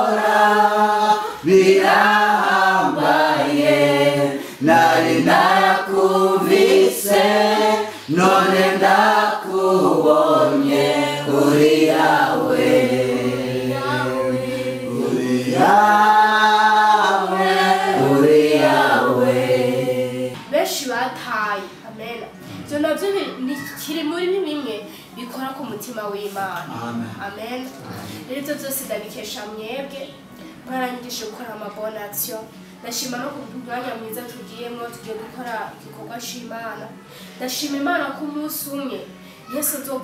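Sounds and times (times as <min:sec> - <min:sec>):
group singing a cappella: 0:00.0 - 0:20.5.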